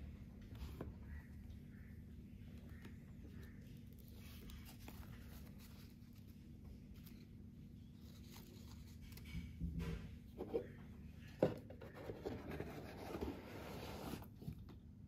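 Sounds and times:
cardboard box rubbing and scraping: 11.8 - 14.4.

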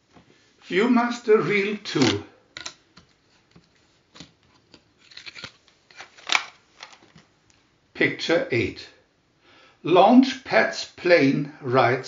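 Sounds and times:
hands handling plastic reel: 1.9 - 7.3.

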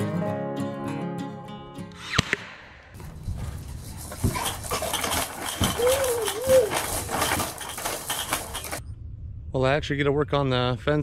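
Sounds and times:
toy parts clicking and clattering: 3.7 - 8.8
baby squealing: 5.8 - 6.8.

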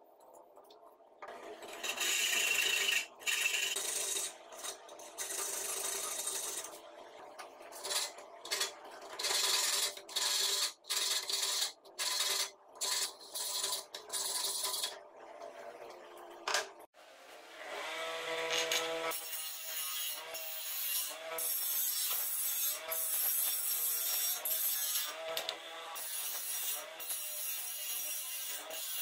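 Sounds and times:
file rasping on steel: 1.6 - 6.8, 7.7 - 14.9.

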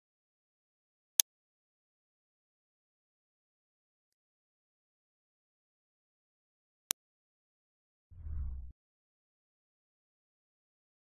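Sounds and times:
deep whoosh: 8.2 - 8.7.

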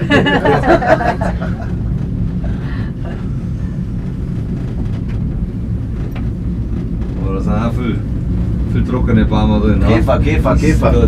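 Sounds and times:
cable car hum and rumble: 0.0 - 11.0
man talking: 8.7 - 11.0.

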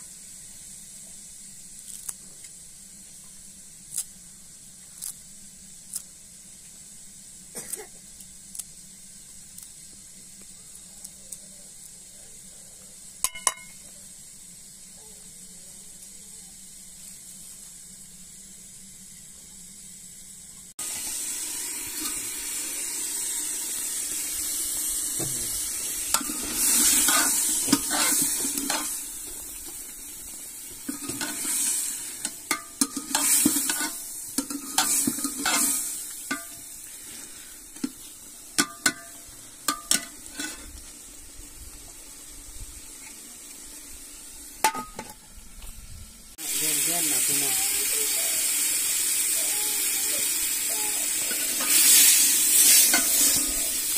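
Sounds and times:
frying sizzle: 0.0 - 53.9
metal spoon scraping a pot: 26.2 - 29.0, 30.9 - 36.5.

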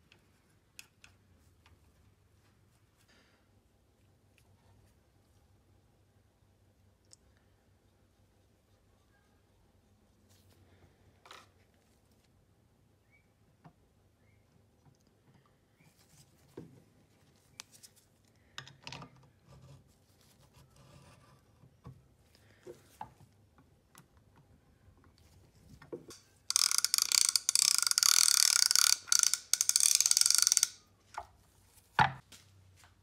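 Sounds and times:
reel being handled: 26.0 - 32.3
fishing reel ratchet clicks: 26.1 - 30.8.

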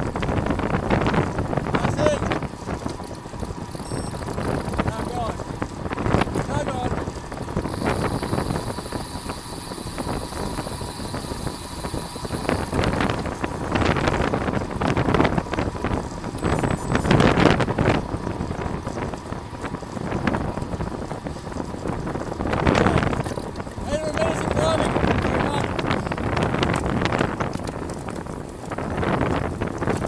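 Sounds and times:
wind buffeting microphone: 0.0 - 30.0
faint high whine: 3.8 - 4.2.

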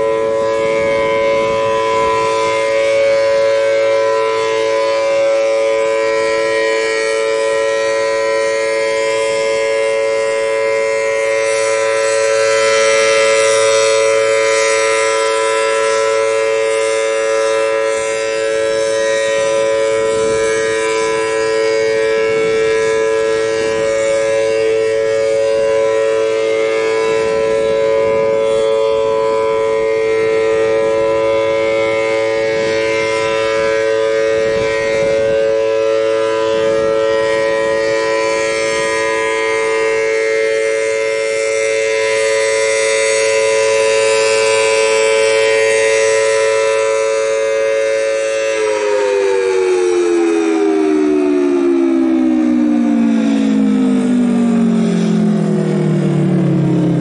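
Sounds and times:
wind rumbling on microphone: 0.0 - 10.9, 18.5 - 44.8, 49.7 - 57.0
warning siren steady tone: 0.0 - 57.0.

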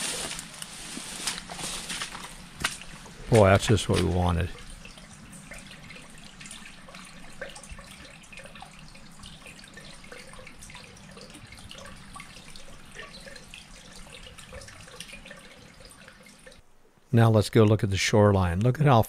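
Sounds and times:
water trickling over stones: 0.0 - 16.6.

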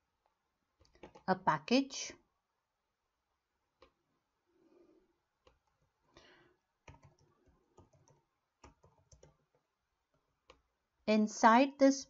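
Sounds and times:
faint keyboard typing: 0.8 - 1.3, 5.4 - 10.7.

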